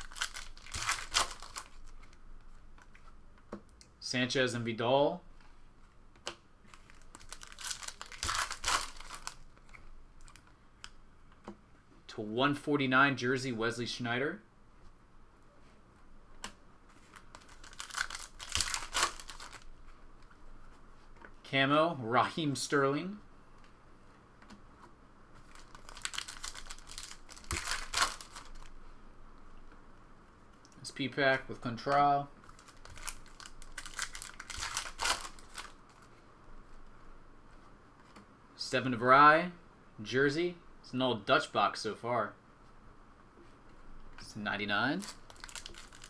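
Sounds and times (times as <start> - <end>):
foil wrapper tearing and crinkling: 0.0 - 2.1, 6.7 - 10.4, 17.1 - 19.7, 25.4 - 28.7, 32.4 - 36.0, 45.0 - 46.0.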